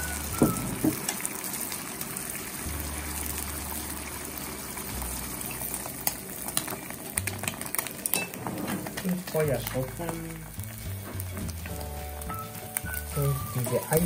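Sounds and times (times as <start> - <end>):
eggs sizzling in a frying pan: 0.0 - 14.0.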